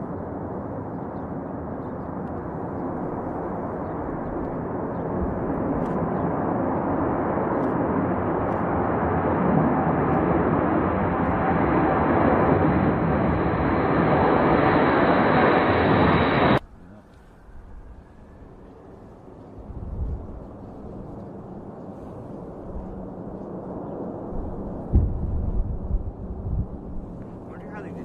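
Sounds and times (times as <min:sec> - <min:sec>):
jet engines at takeoff: 0:00.0 - 0:28.0.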